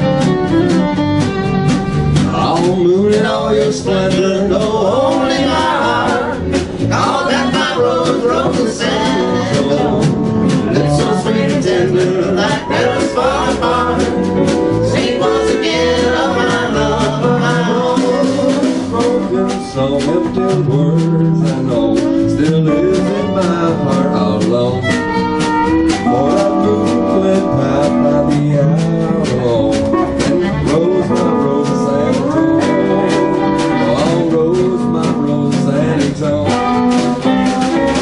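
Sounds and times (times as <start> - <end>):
fiddle: 0.0 - 2.4, 23.4 - 26.6
country string band playing: 0.0 - 38.0
man singing: 2.2 - 25.2, 25.9 - 38.0
woman singing: 7.0 - 10.1.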